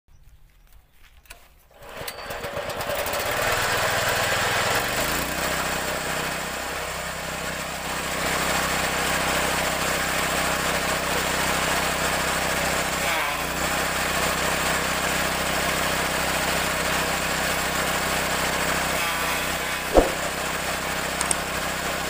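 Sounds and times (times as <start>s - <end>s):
engine pull-start: 1.8s - 5.8s
petrol engine running: 1.8s - 22.0s.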